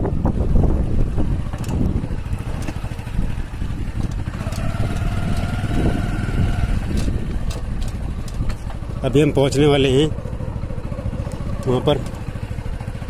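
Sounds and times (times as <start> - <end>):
wind rumble on microphone: 0.0 - 9.5.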